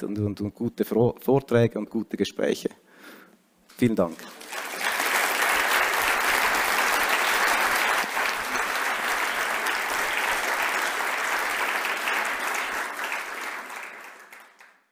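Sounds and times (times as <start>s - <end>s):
audience applauding: 4.2s - 14.9s.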